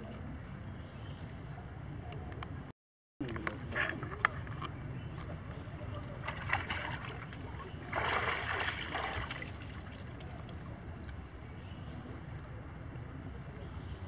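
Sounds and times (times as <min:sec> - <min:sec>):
water splashing: 0:05.4 - 0:11.3.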